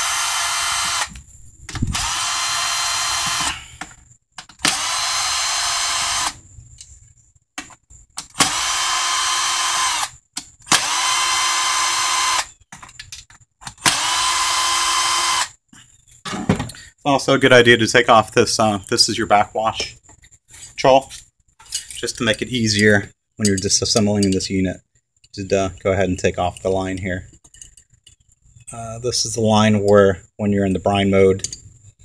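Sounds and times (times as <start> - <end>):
cordless drill spinning: 0.0 - 1.2, 1.8 - 3.7, 4.7 - 6.4, 8.4 - 10.1, 10.7 - 12.6, 13.8 - 15.5.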